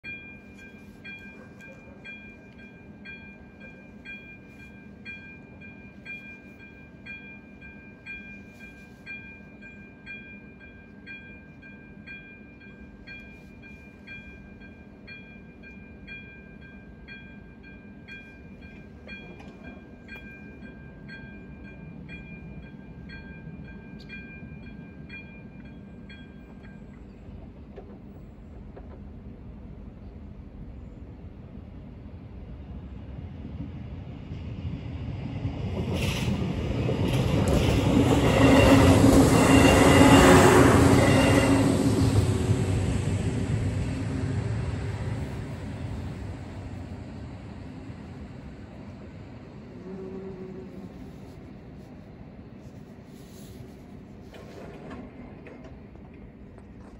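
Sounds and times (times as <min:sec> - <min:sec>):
level crossing warning bell: 0:00.0 - 0:27.4, 0:37.0 - 0:46.4.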